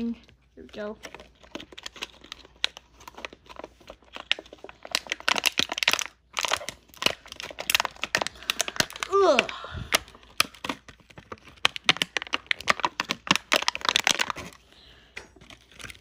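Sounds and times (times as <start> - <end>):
plastic bag crinkling: 0.0 - 16.0.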